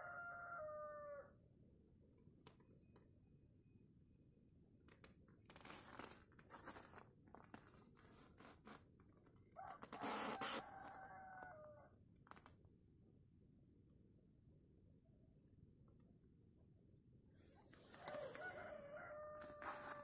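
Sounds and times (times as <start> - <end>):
rooster crowing: 0.0 - 1.4, 9.6 - 11.9, 18.1 - 20.0.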